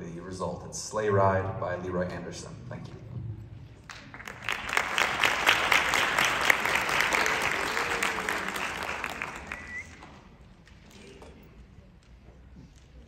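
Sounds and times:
audience applauding: 3.9s - 10.3s.

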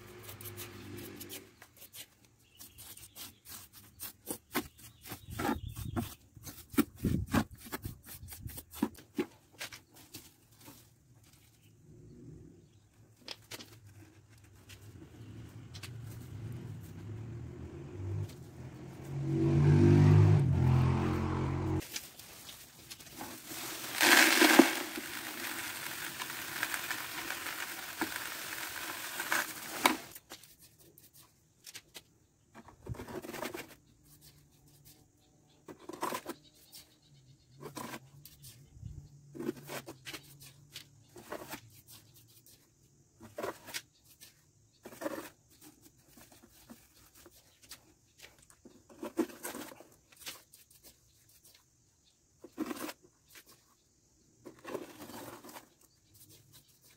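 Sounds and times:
trowel scraping cement mix: 0.0s - 10.3s, 23.0s - 31.3s
cement mix pouring into bucket: 23.0s - 30.2s.

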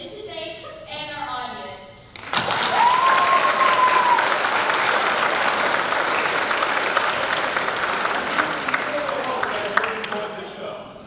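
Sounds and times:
audience applauding: 2.2s - 10.6s.

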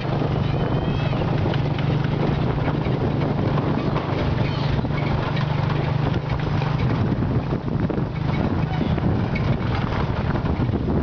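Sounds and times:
rattling: 0.0s - 10.9s
road noise: 0.0s - 11.0s
vehicle engine droning: 0.0s - 11.0s.

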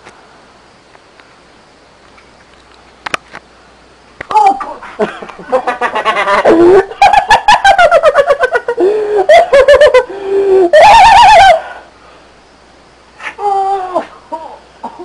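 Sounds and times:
person laughing loudly: 4.6s - 11.6s.

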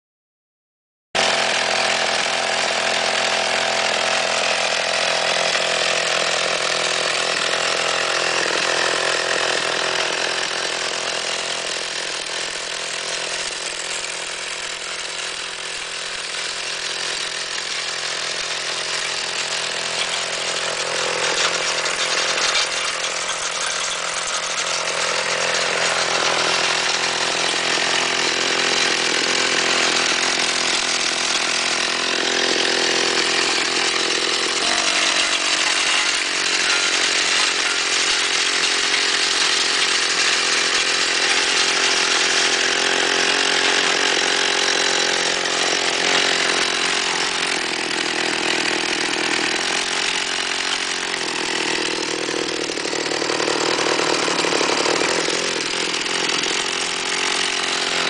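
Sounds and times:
two-stroke engine running: 1.2s - 58.0s.

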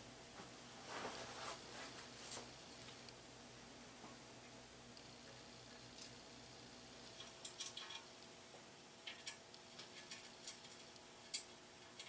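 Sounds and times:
small metal parts clicking: 7.2s - 8.1s, 9.0s - 12.0s.

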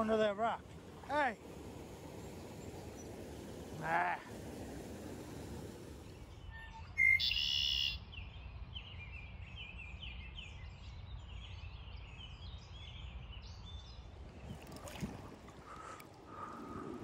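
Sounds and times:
blackbird singing buzzy trill: 6.3s - 14.1s
sharp bird chip calls: 6.5s - 8.0s.

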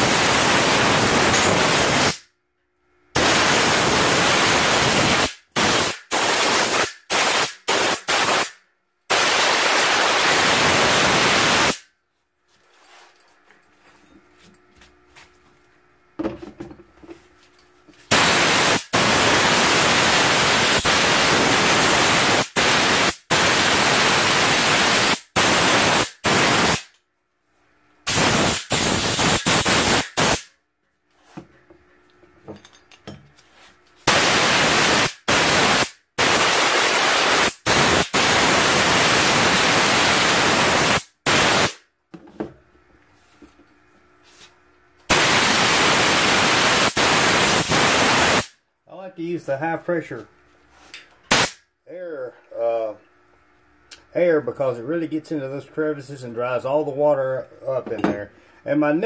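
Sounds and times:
compressed air hissing: 0.0s - 2.2s, 3.2s - 11.8s, 18.1s - 26.9s, 28.1s - 30.5s, 34.1s - 41.8s, 45.1s - 48.5s, 50.8s - 51.6s.

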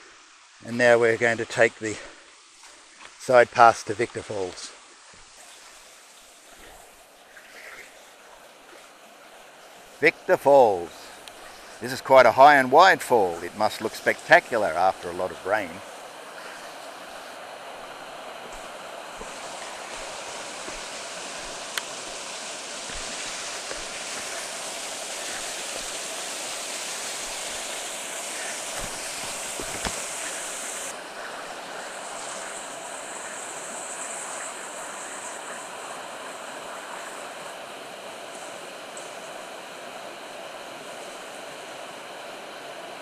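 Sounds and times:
waterfall rushing: 9.4s - 43.0s.

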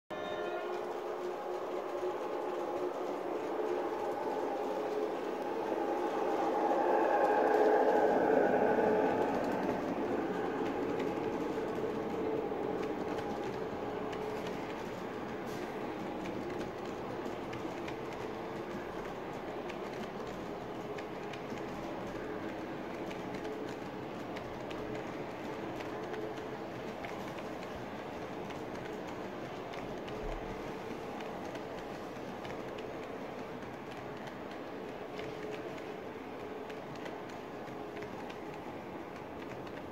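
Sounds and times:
model train rolling on track: 0.1s - 39.9s.

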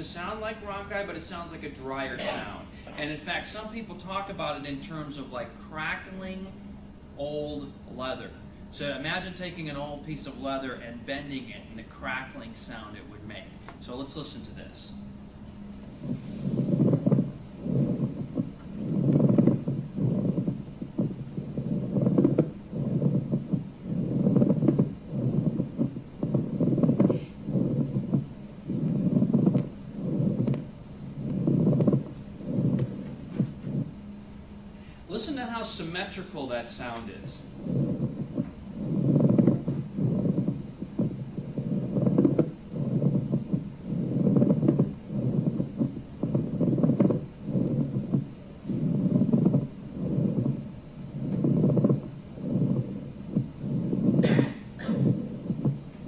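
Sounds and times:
crackly grating friction rub: 16.0s - 34.0s, 36.8s - 56.0s.

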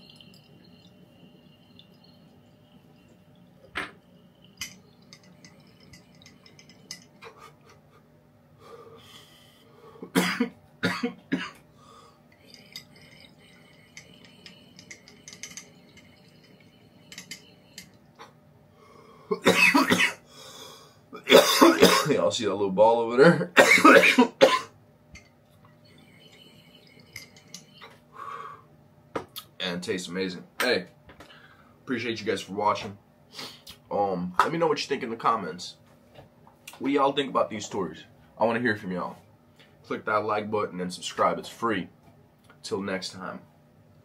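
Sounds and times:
man coughing hard: 10.0s - 11.6s, 19.3s - 20.2s, 21.2s - 22.2s, 23.5s - 24.7s.

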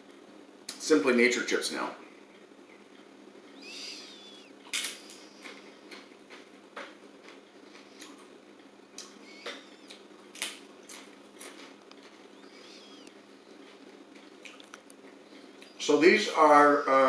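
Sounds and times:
chewing crunchy chip: 9.9s - 12.3s, 14.1s - 15.7s.

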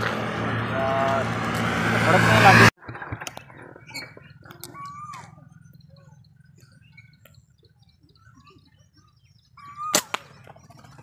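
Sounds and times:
faint bird chirps: 3.3s - 11.0s.

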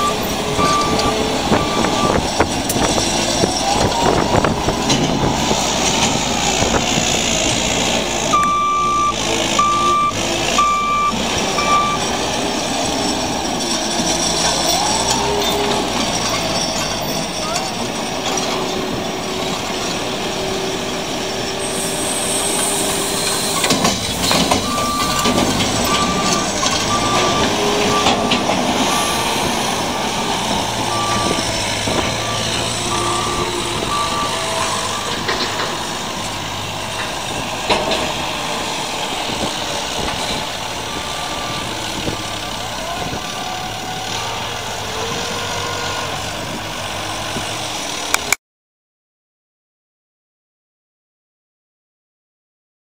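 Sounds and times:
reversing alarm beeping: 0.0s - 2.3s, 8.3s - 12.2s, 24.6s - 35.4s, 41.0s - 42.1s
farm machinery engines: 0.0s - 48.4s.

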